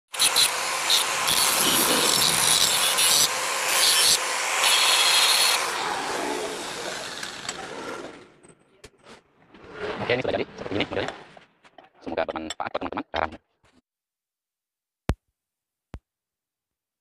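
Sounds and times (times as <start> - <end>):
angle grinder grinding steel: 0.1 - 8.4
grinder winding down: 0.1 - 8.4.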